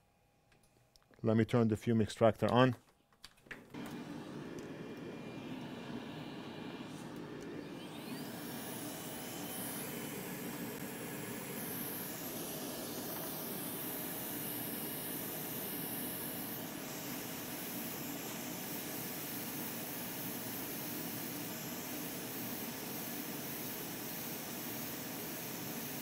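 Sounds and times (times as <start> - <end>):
extractor fan whooshing: 3.8 - 20.5.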